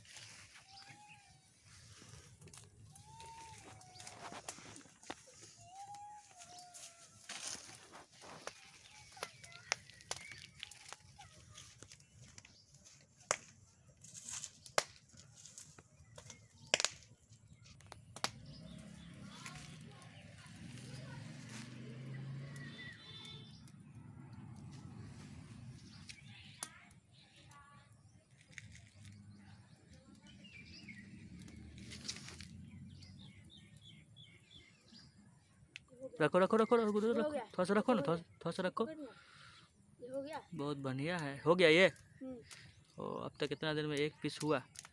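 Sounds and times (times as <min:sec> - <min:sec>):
small bird chirping: 0:00.1 - 0:14.7, 0:25.7 - 0:35.2
wood fire crackling and popping: 0:00.1 - 0:34.8, 0:40.3 - 0:44.9.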